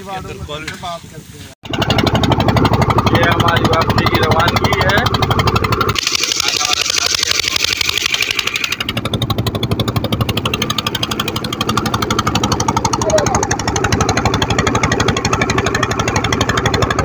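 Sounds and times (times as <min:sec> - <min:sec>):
boat engine pulsing: 0:01.6 - 0:17.0.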